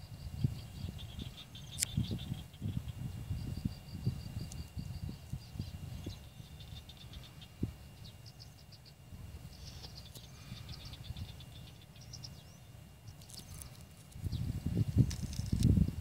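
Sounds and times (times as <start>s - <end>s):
high chirping calls: 0.4s - 3.1s.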